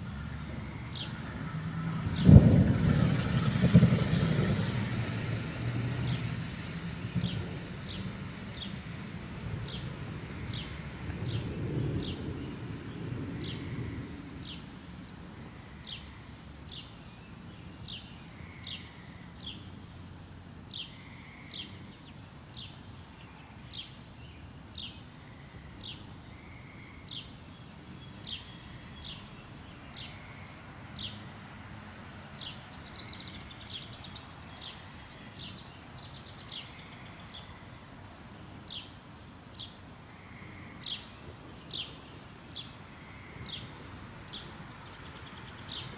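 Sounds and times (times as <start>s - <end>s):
thunder rumble: 1.0s - 14.6s, 40.4s - 45.9s.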